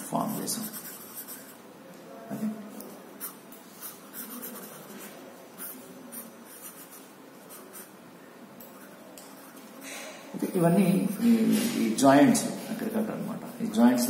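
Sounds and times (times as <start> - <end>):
pencil scratching on paper: 0.0 - 1.6, 3.2 - 7.9.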